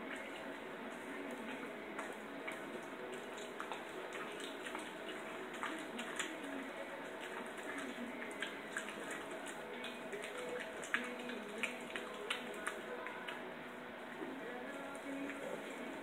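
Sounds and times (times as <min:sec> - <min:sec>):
dog chewing wetly: 0:00.0 - 0:13.5.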